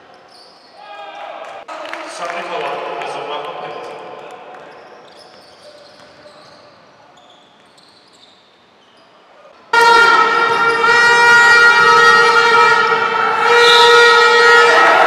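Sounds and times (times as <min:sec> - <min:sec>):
sneaker squeaks: 0:00.0 - 0:01.0, 0:03.6 - 0:09.8
loud horn blast: 0:09.7 - 0:15.0.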